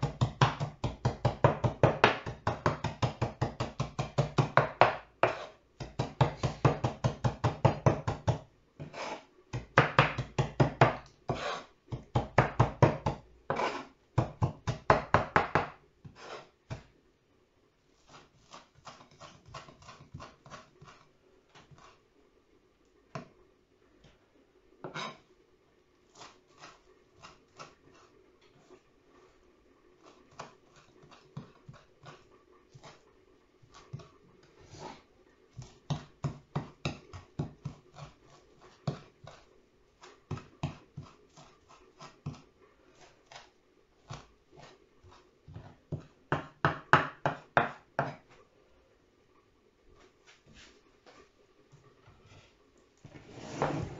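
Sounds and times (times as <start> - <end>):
knife chopping on wooden board: 0.0 - 16.9, 35.6 - 39.4, 40.3 - 42.4, 45.5 - 48.2.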